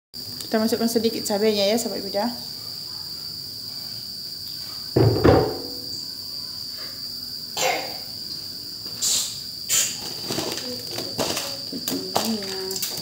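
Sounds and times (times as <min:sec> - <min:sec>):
crickets trilling: 0:00.2 - 0:13.0
loud bumps: 0:05.0 - 0:05.9.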